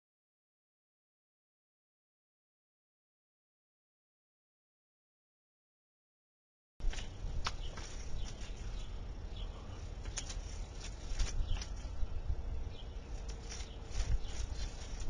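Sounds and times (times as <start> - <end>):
wind on microphone: 10.8 - 15.0.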